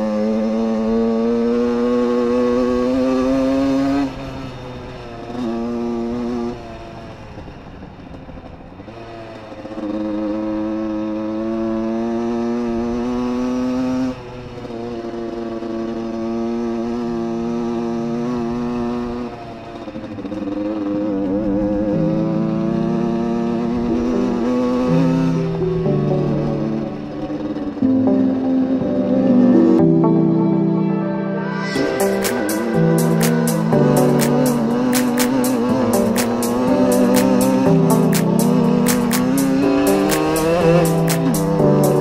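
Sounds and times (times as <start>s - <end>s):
dirt bike engine revving: 8.9s - 28.1s, 31.8s - 42.0s.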